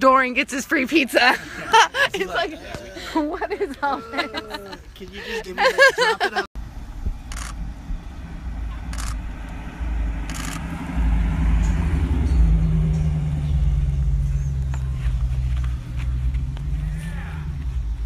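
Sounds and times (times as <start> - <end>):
car engine driving past: 7.1 - 18.0.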